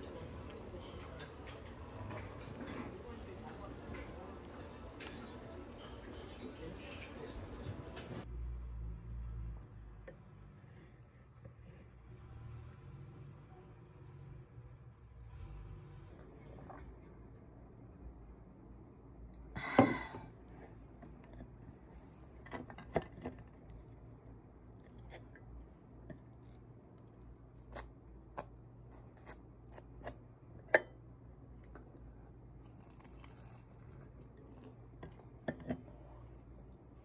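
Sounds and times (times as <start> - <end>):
low room hum: 0.0 - 37.0
toasted bagel crunching: 31.6 - 37.0.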